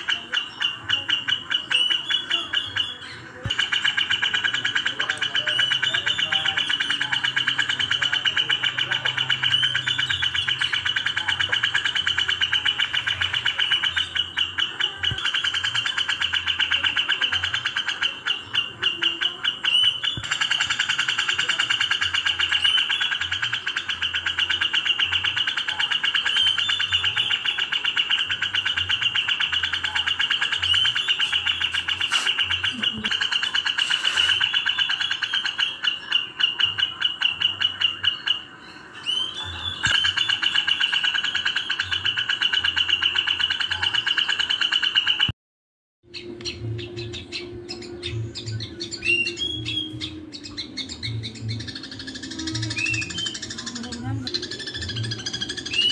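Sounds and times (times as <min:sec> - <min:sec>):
bulbul song: 0:00.0 - 0:45.3, 0:46.0 - 0:55.9
sparrows chattering: 0:00.0 - 0:45.3, 0:46.0 - 0:55.9.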